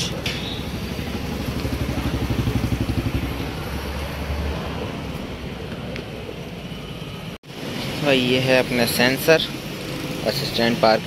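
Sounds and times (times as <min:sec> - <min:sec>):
vehicle engine pulsing: 0:00.0 - 0:07.3
steady background noise: 0:00.0 - 0:11.0.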